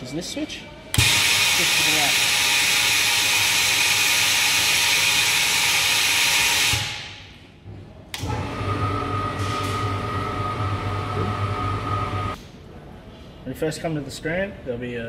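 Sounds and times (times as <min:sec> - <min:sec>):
machine hum with high whine: 0:00.9 - 0:12.4.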